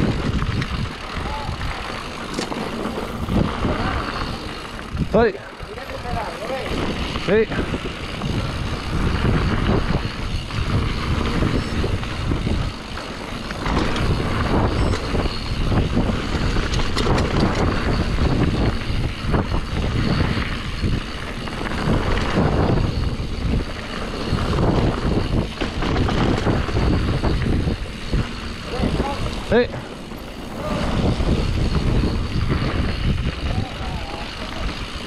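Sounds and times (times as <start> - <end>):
bike knocking and rattling: 0.0 - 35.0
tyres on dirt: 0.0 - 35.0
wind on microphone: 0.0 - 35.0.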